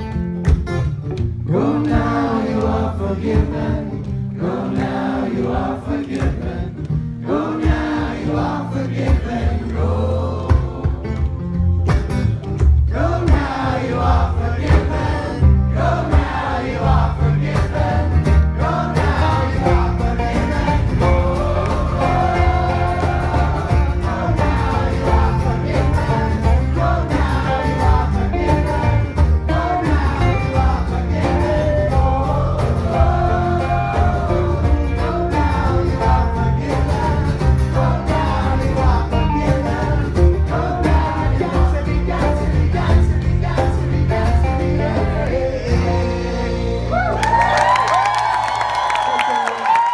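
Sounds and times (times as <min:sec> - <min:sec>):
acoustic guitars: 0:00.0 - 0:47.1
bass: 0:00.0 - 0:49.9
voices singing together: 0:01.4 - 0:47.0
banjo: 0:11.8 - 0:47.0.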